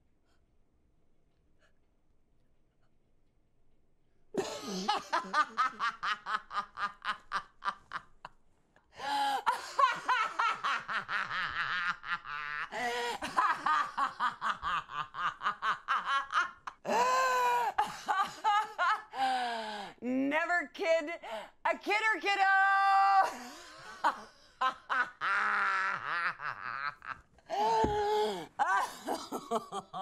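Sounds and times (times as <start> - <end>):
man laughing hard: 4.4 - 8.1, 9.0 - 19.2, 23.2 - 30.0.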